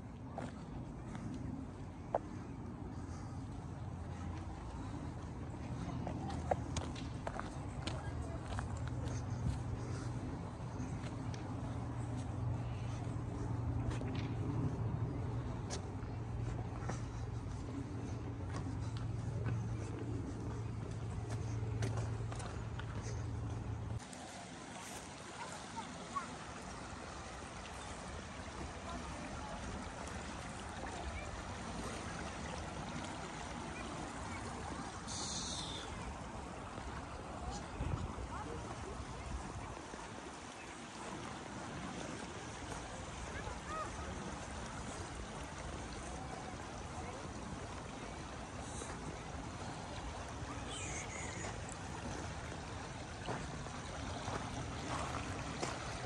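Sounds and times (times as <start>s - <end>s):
river water rushing: 16.0s - 56.0s.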